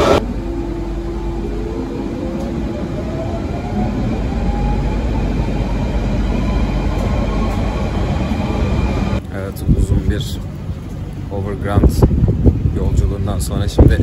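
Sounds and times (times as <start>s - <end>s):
train traction motors whining: 0.0s - 9.3s.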